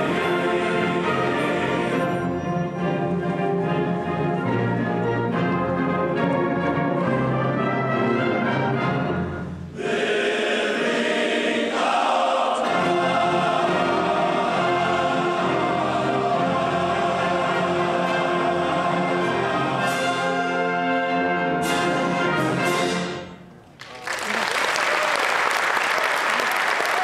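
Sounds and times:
men's chorus singing: 0.0s - 2.3s, 9.8s - 20.3s
concert wind band: 0.0s - 27.0s.

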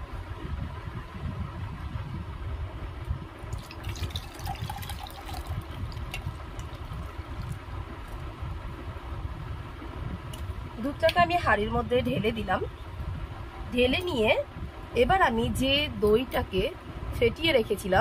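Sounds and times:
low steady rumble: 0.0s - 18.0s
milk pouring and splashing: 3.5s - 8.2s.

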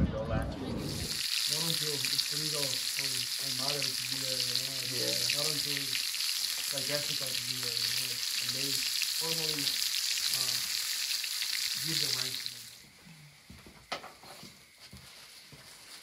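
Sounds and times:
low voice: 0.0s - 5.9s
meat sizzling on grill: 0.8s - 12.9s.

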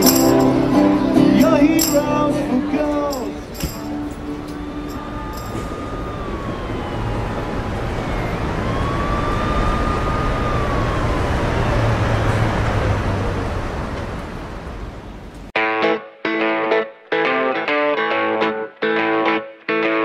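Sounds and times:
city traffic rumble: 0.0s - 15.6s
emergency siren wailing: 4.2s - 13.4s.

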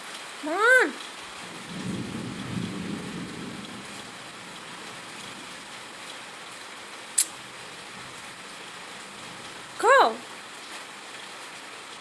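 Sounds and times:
steady rain falling: 0.0s - 12.0s
low rumble of thunder: 1.3s - 6.1s
sharp click: 7.2s - 7.4s.

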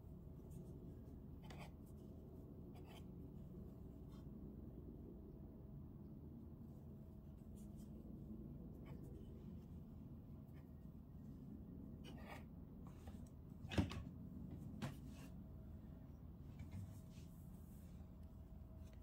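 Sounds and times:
low steady hum: 0.0s - 19.0s
crochet hook scratching yarn: 0.4s - 3.3s, 7.4s - 9.7s, 12.0s - 12.5s.

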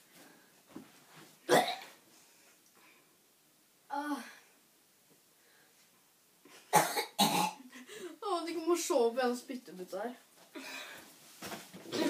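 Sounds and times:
boy coughing: 1.5s - 1.9s, 6.7s - 7.7s
boy vocalizing: 3.9s - 4.4s.

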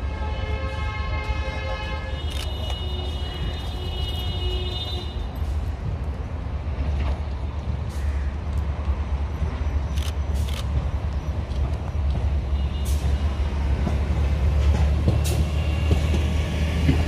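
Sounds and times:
multi-tone horn: 0.0s - 5.2s
draisine rumbling along track: 1.2s - 17.0s.

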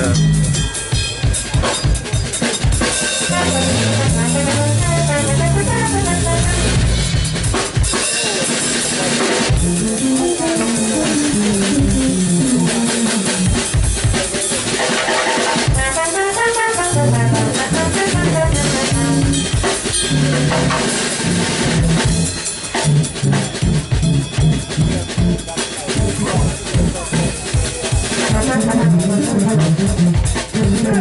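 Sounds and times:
drum kit: 0.0s - 31.0s
trombone: 3.1s - 7.5s, 9.5s - 13.7s, 14.7s - 31.0s
keytar: 16.8s - 31.0s.

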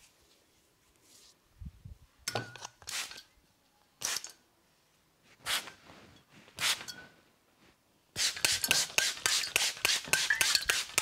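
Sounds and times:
spray bottle spritzing: 2.9s - 3.2s, 4.0s - 4.3s, 8.2s - 11.0s.

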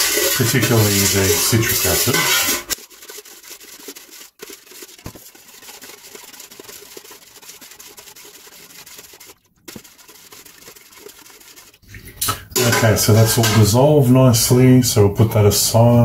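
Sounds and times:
metal spoon scraping pot: 0.0s - 3.0s, 12.3s - 13.9s.

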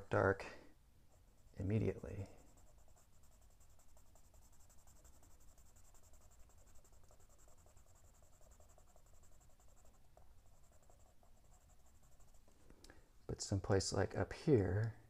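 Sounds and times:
pencil scratching on paper: 1.1s - 12.5s.

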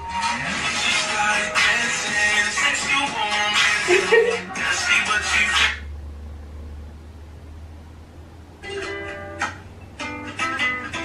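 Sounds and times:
guitar chords plucked and strummed: 0.0s - 5.9s, 8.6s - 11.0s.

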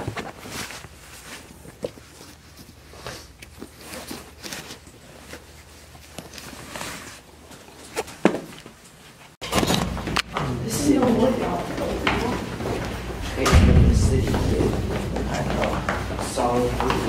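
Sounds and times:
clothes rustling: 0.0s - 13.4s
sharp knocks: 13.4s - 15.3s.

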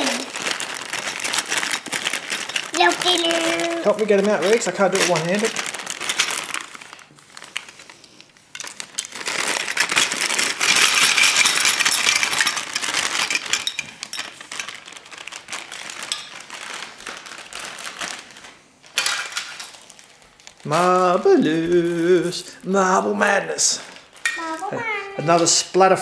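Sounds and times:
plastic pieces clattering: 0.0s - 7.7s, 8.5s - 21.0s
plastic bag crinkling: 0.0s - 25.7s.

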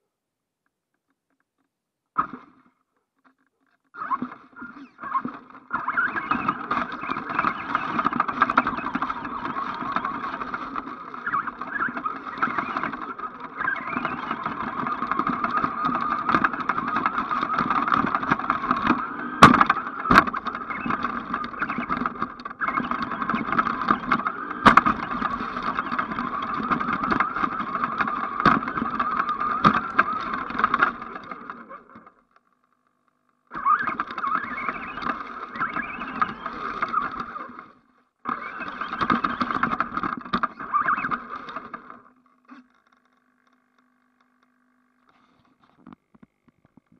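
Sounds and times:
electric motor whining: 4.0s - 32.2s, 33.5s - 42.7s.

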